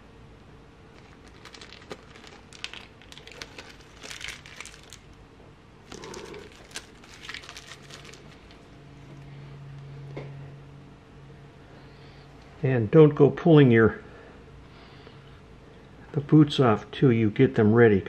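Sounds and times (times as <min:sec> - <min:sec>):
plastic bags crinkling: 0:00.9 - 0:05.2, 0:05.8 - 0:08.8.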